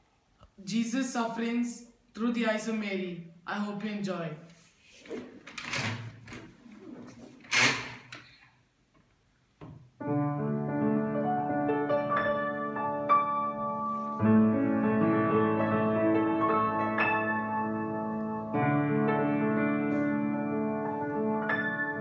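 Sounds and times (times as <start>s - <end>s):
upright piano melody: 10.0s - 22.0s.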